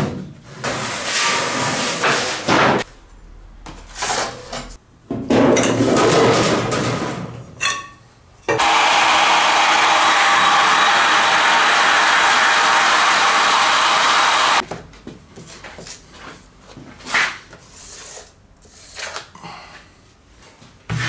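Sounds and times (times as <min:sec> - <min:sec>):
heat gun blowing: 0:08.6 - 0:14.6.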